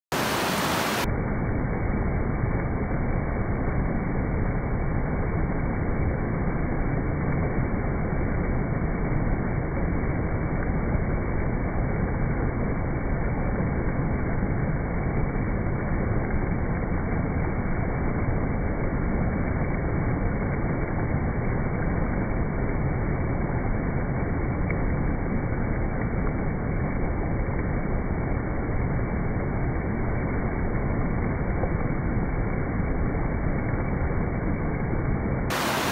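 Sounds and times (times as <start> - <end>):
river rapids rushing over boulders: 0.1 - 1.1, 35.5 - 35.9.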